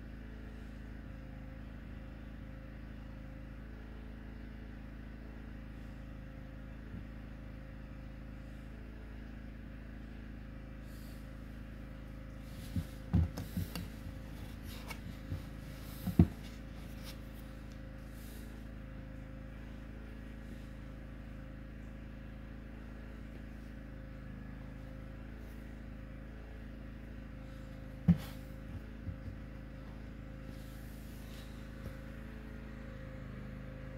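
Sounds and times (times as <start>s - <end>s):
room tone hum: 0.0s - 33.9s
handling knocks and taps: 12.6s - 17.2s.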